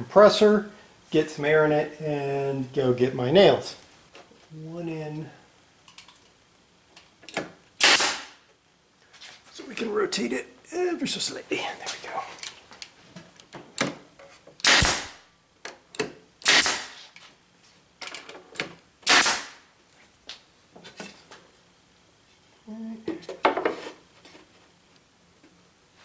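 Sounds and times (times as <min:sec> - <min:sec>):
air hiss: 0:07.8 - 0:08.4, 0:14.6 - 0:15.2, 0:16.4 - 0:17.3, 0:19.0 - 0:19.6
nail gun firing: 0:07.8 - 0:08.4, 0:14.6 - 0:15.2, 0:16.4 - 0:17.0, 0:19.0 - 0:19.6.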